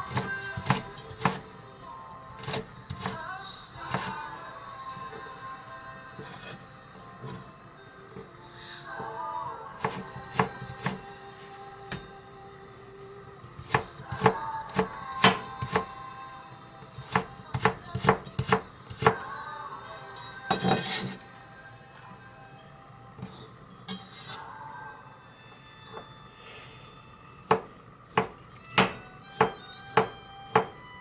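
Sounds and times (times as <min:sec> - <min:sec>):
knife chopping on cutting board: 0:00.1 - 0:01.4, 0:02.4 - 0:03.2, 0:03.9 - 0:04.2, 0:09.8 - 0:11.0, 0:13.7 - 0:15.9, 0:17.0 - 0:19.2, 0:27.5 - 0:30.8.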